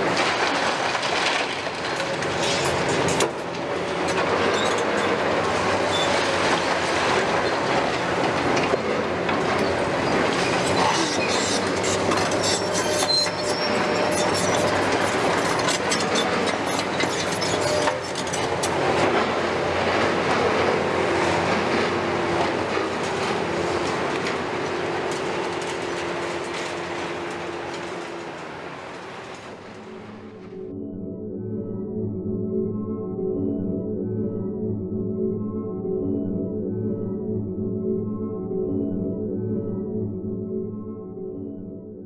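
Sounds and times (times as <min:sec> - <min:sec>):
debris and metal clattering: 0:00.0 - 0:30.4
excavator crunching brick and concrete: 0:00.0 - 0:30.4
diesel engines under load: 0:00.0 - 0:30.5.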